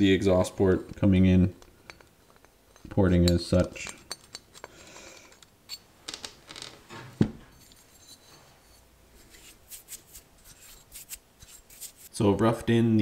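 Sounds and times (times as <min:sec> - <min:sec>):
metal tools clinking: 0:01.8 - 0:06.6, 0:07.4 - 0:08.9.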